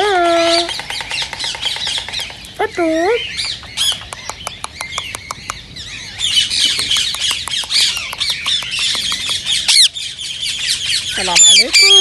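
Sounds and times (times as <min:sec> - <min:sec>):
parakeet chattering: 0:06.4 - 0:10.0, 0:11.1 - 0:12.0.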